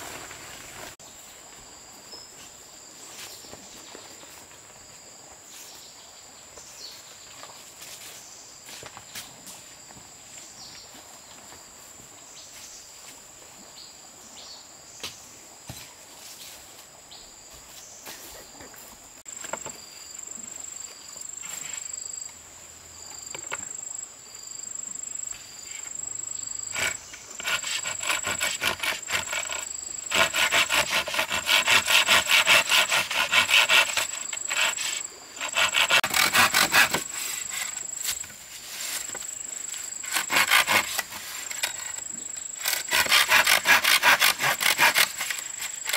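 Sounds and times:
high insect buzz: 23.0 - 45.9
hand saw cutting wood: 26.7 - 38.0, 40.0 - 42.0, 42.6 - 45.9.

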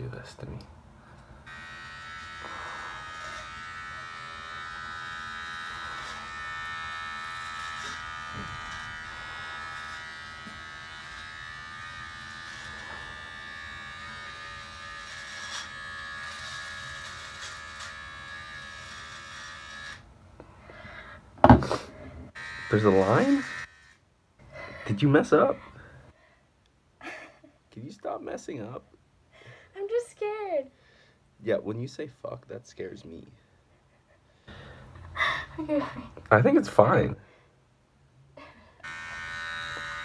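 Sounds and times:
electric hair clippers buzzing: 1.4 - 20.1, 21.7 - 24.1, 38.8 - 40.0.

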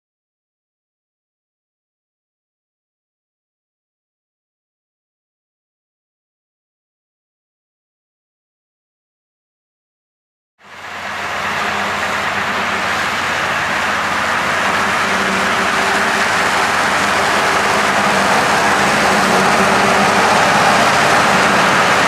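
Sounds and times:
tractor engines running: 10.6 - 22.0
mowers cutting grass: 10.7 - 22.0.

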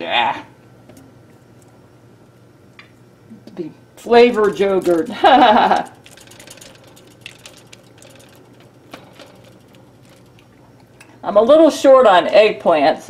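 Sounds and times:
woman's voice: 3.4 - 5.6, 11.2 - 13.0
brush tapping on foil: 4.0 - 10.6.

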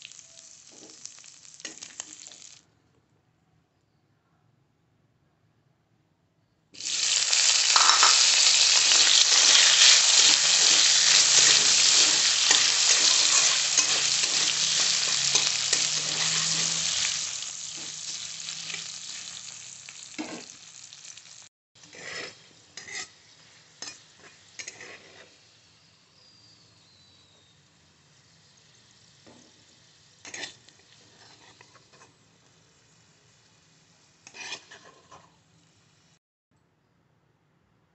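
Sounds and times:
potatoes sizzling in oil: 0.0 - 2.6, 6.8 - 36.2
spatula scraping pan: 6.8 - 20.6, 21.8 - 25.5, 30.2 - 32.2, 34.2 - 35.4.

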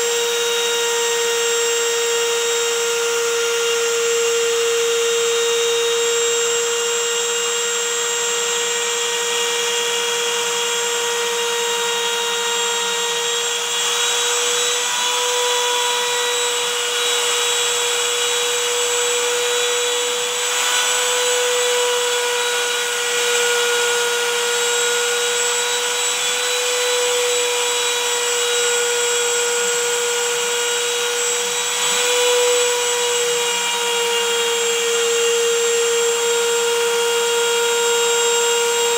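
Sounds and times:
router spindle high whine: 0.0 - 38.9.

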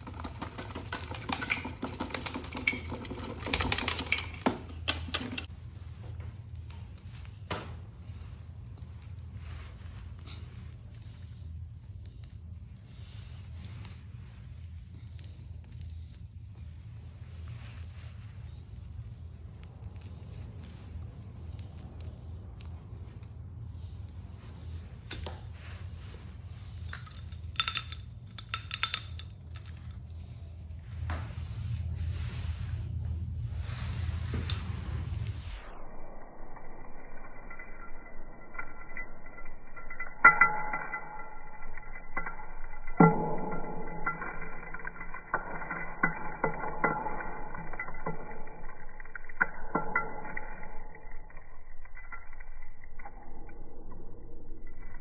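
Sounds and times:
metal vacuum wand clinking: 0.0 - 6.1, 18.5 - 30.8, 34.2 - 35.5.

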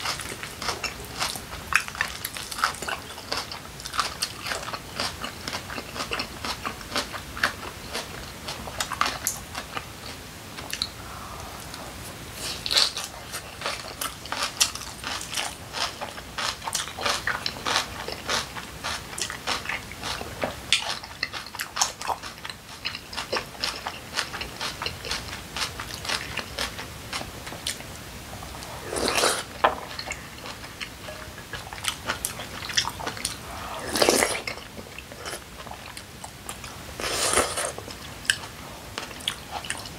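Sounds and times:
crisp chewing crunches: 12.4 - 27.9
slurps from a spoon: 28.8 - 29.5.

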